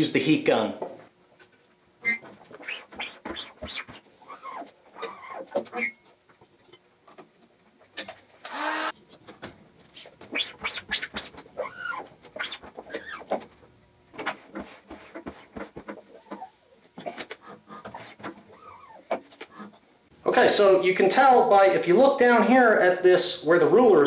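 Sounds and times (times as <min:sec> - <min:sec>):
sped-up squeegee chirps and scrapes: 0:02.0 - 0:06.0, 0:10.0 - 0:13.3.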